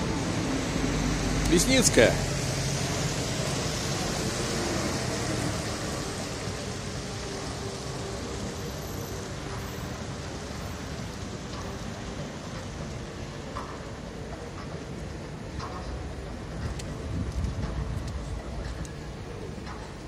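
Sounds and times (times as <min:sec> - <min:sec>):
truck passing: 0:00.0 - 0:07.6.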